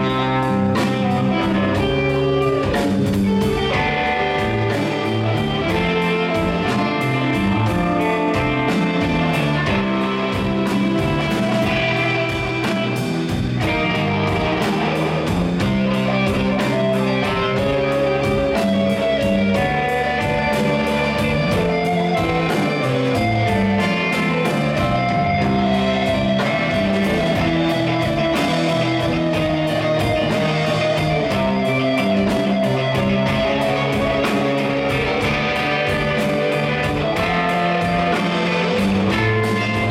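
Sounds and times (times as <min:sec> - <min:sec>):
live rock band playing: 0:00.0 - 0:39.9
sustained guitar notes: 0:00.0 - 0:39.9.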